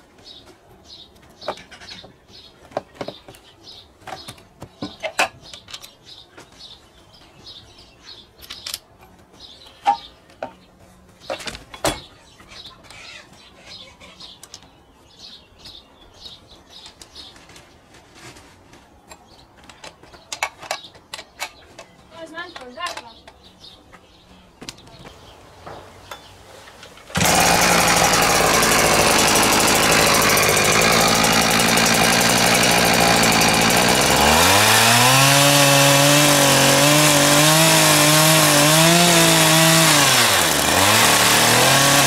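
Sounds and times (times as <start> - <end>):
small birds chirping: 0.2 - 26.9.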